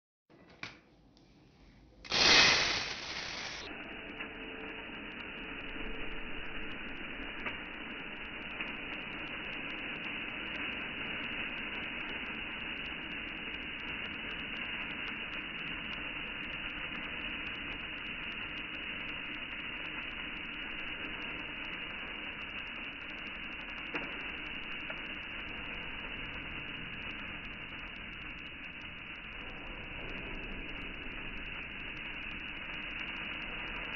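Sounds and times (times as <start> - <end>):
rice grains pouring into a pot: 2.1 - 3.7, 5.8 - 33.9
short burst of noise: 2.1 - 7.1.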